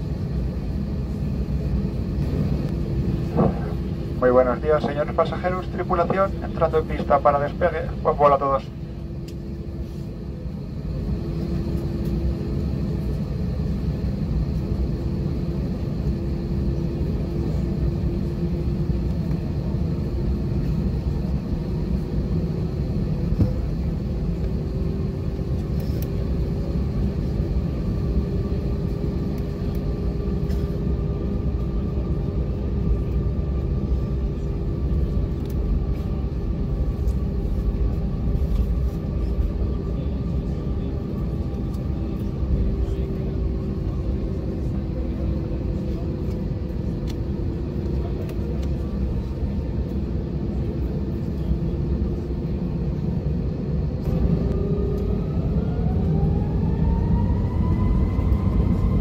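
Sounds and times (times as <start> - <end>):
jet engines low rumble: 0.0 - 59.0
steady cabin hum: 0.0 - 59.0.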